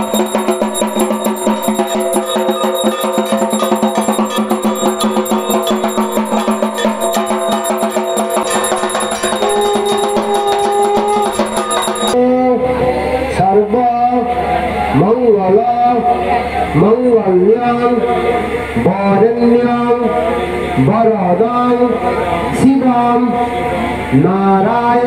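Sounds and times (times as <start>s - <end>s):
drums beaten in fast rhythm: 0.0s - 12.2s
ringing metal percussion: 0.0s - 12.3s.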